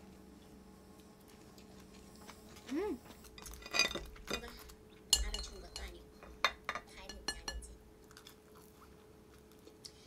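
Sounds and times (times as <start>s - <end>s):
chopsticks clinking against ceramic bowl: 5.1s - 7.7s.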